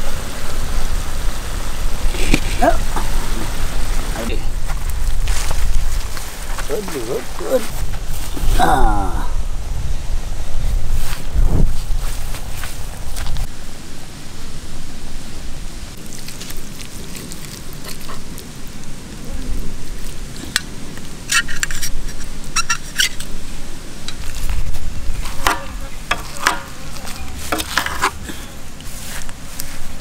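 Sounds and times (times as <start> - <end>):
wind on microphone: 0.0 - 16.0, 19.2 - 30.0
utensil scraping metal plate: 25.2 - 28.6.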